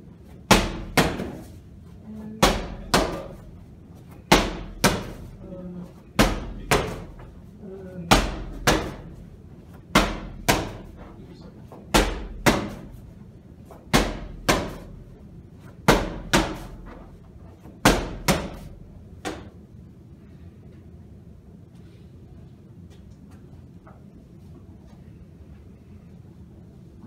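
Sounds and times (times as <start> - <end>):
medicine ball slamming on rubber floor: 0.5 - 1.6, 2.4 - 3.5, 4.2 - 5.4, 6.2 - 7.3, 8.1 - 9.2, 9.9 - 11.0, 11.9 - 13.0, 13.9 - 15.0, 15.8 - 16.9, 17.8 - 19.5.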